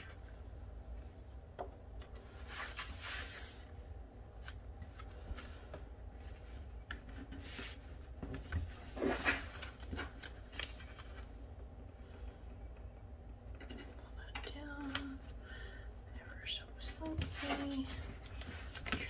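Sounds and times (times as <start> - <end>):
paper sliding and rustling: 2.4 - 3.7, 7.3 - 11.2.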